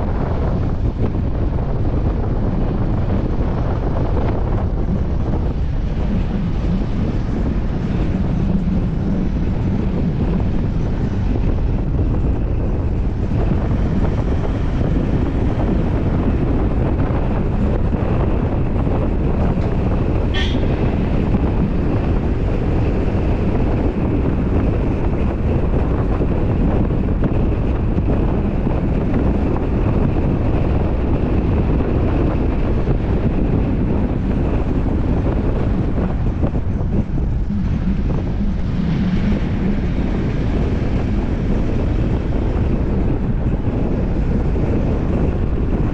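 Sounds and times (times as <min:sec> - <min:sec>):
road and engine rumble: 0:00.0 - 0:45.9
wind rushing over camera: 0:00.0 - 0:45.9.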